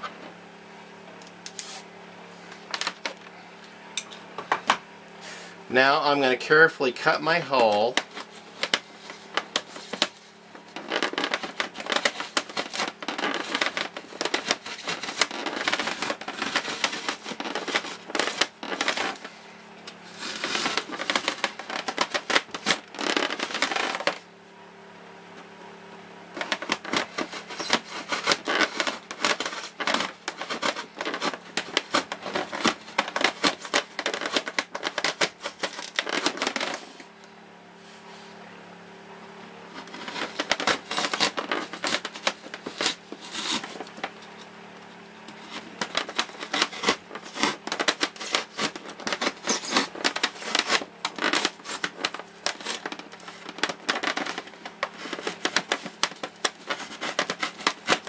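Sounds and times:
knife sawing through styrofoam: 7.3s - 24.2s, 26.4s - 37.0s, 39.8s - 44.2s, 45.3s - 58.0s.

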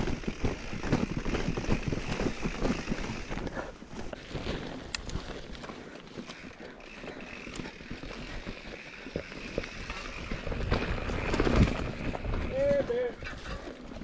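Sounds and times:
bike rattling and knocking: 0.0s - 14.0s
wind rumble on microphone: 9.2s - 14.0s.

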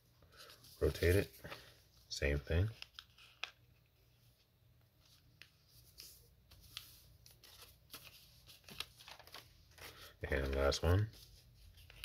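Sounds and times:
paper rustling and creasing: 0.3s - 1.8s, 2.6s - 12.0s
crisp paper crackles: 5.9s - 12.0s.

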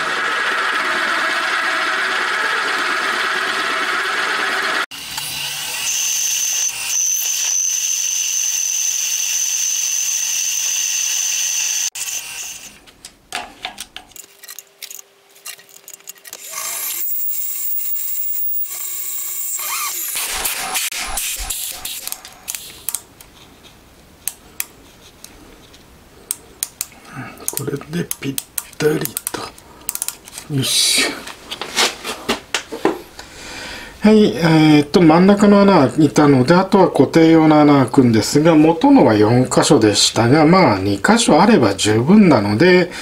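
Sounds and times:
high spindle whine: 0.0s - 12.8s
milling machine cutting metal: 16.3s - 21.9s.

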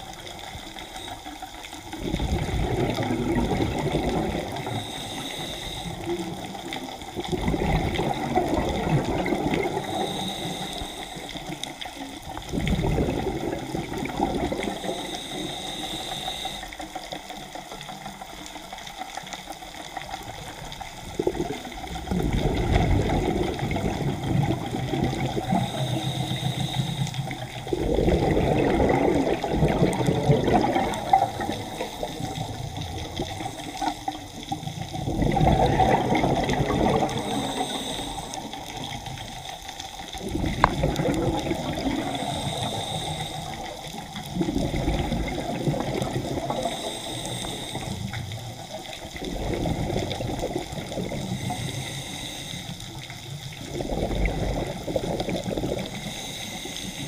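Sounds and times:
faint breathing hiss: 0.0s - 7.1s, 7.9s - 35.1s, 35.8s - 57.0s
regulator bubbles underwater: 0.0s - 57.0s.

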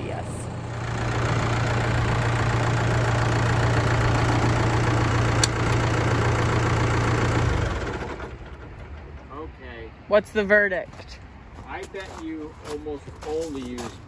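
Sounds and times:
tractor diesel engine idling: 0.0s - 10.5s.

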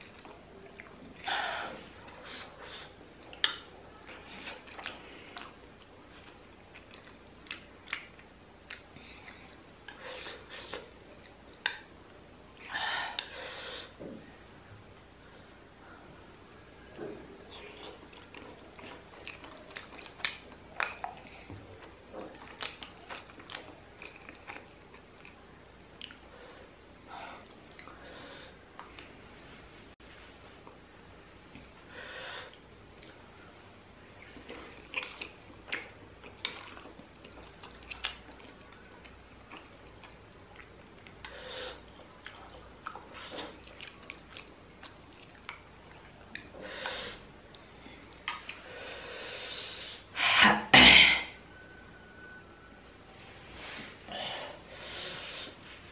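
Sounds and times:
person chewing: 0.0s - 11.9s, 17.5s - 25.4s, 26.0s - 26.3s, 27.4s - 28.0s, 34.2s - 46.6s.

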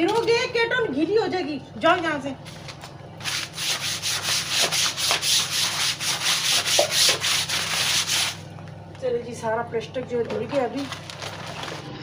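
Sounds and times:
brush scrubbing wet plastic: 3.2s - 8.4s.

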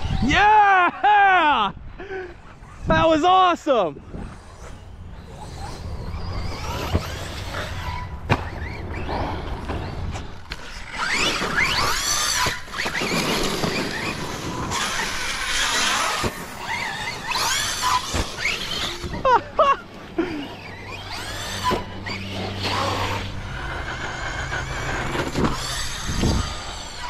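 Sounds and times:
electric motor whining: 4.0s - 27.0s.

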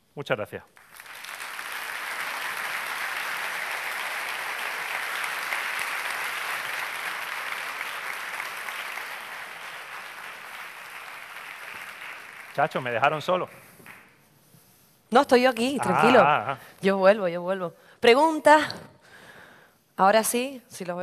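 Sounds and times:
audience applauding: 0.8s - 14.1s.

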